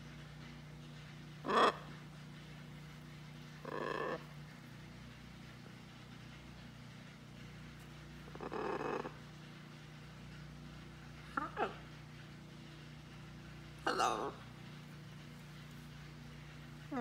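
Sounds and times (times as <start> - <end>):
macaw calling: 1.4 - 2.0, 3.6 - 4.4, 8.2 - 9.3, 11.2 - 12.0, 13.8 - 14.8.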